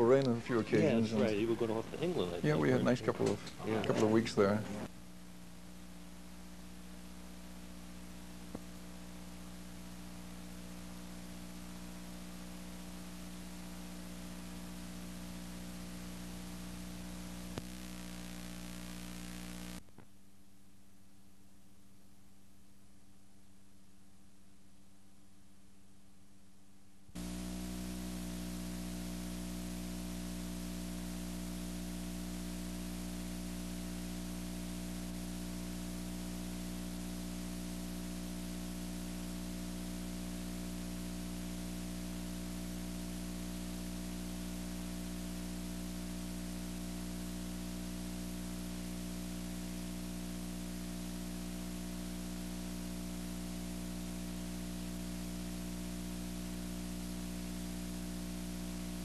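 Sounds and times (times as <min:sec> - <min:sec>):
blank tape hiss: 0:00.0 - 0:59.0
low electrical hum: 0:00.0 - 0:59.0.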